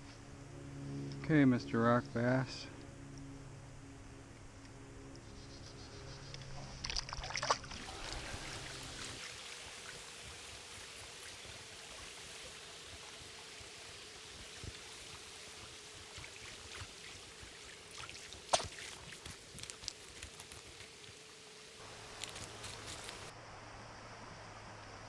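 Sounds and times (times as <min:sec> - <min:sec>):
creek water running: 0:06.4 - 0:23.3.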